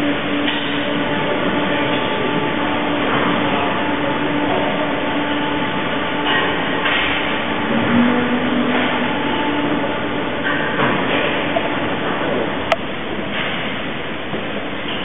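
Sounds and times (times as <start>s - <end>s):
milking machinery humming: 0.0s - 15.0s.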